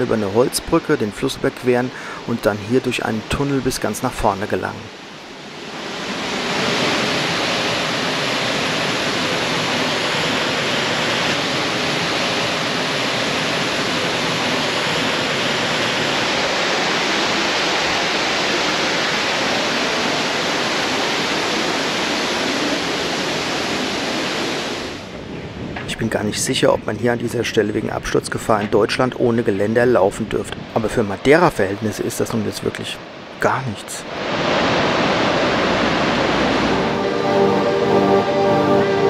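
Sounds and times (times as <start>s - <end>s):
river rushing over rocks: 0.0s - 25.1s, 34.1s - 39.0s.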